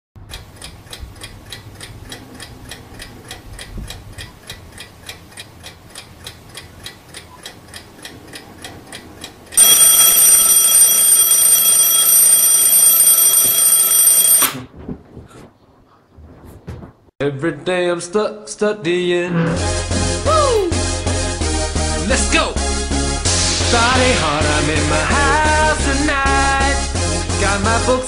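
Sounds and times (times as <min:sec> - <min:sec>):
clock ticking: 0:00.3 - 0:14.5
alarm clock ringing: 0:09.6 - 0:14.6.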